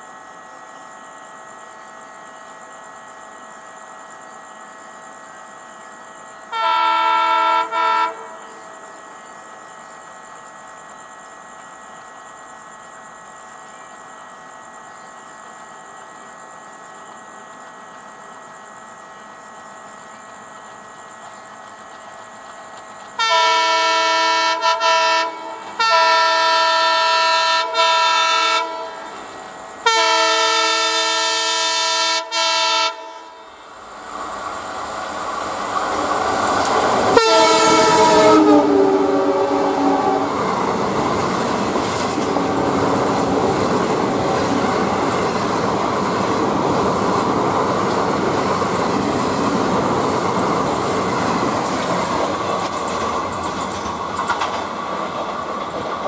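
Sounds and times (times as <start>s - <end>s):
train rumble and wheel clatter: 0.0s - 56.0s
train horn blasts: 6.5s - 8.8s, 23.2s - 33.7s, 37.1s - 40.7s.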